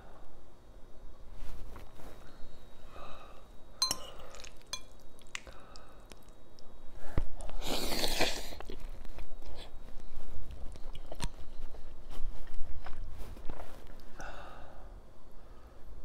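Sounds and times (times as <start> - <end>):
fork clinking on glass bowl: 3.8 - 5.0.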